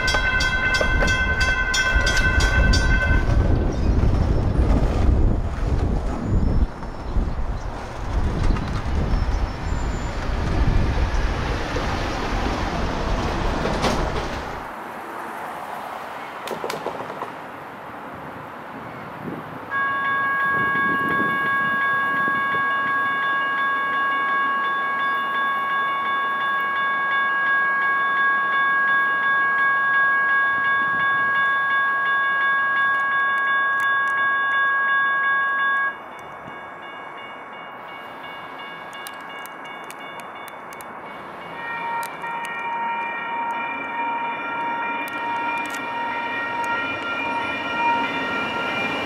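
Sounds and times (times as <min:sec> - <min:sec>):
crossing warning bell ringing: 0:00.0 - 0:04.7, 0:19.7 - 0:49.0.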